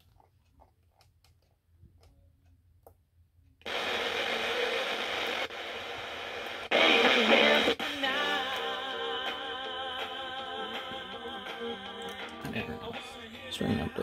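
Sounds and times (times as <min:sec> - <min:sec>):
radio tuning button clicks: 0:03.7 - 0:07.2
radio static: 0:03.7 - 0:07.8.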